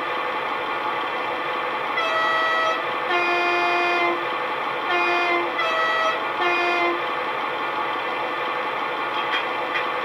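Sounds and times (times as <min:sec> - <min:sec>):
locomotive engine sound: 0:00.0 - 0:10.0
two-tone locomotive horn blasts: 0:02.0 - 0:04.3, 0:04.9 - 0:07.1.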